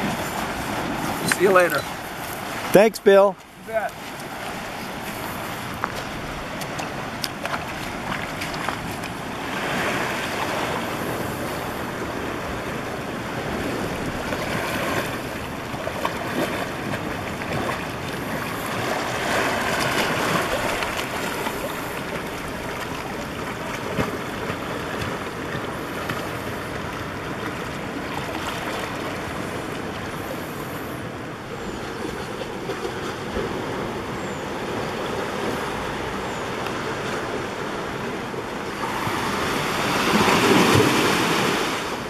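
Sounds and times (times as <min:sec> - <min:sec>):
water splashing: 0:00.0 - 0:31.0
waves washing over rocks: 0:00.0 - 0:42.0.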